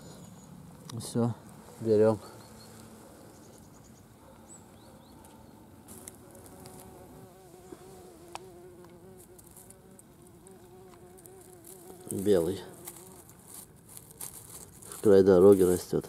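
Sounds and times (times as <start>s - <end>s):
flying insect buzzing: 5.2s - 13.7s.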